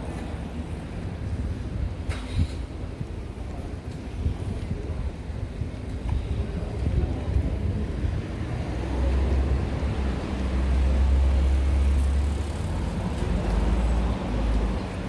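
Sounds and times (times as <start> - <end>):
passing vehicle rumble: 7.0 - 15.0.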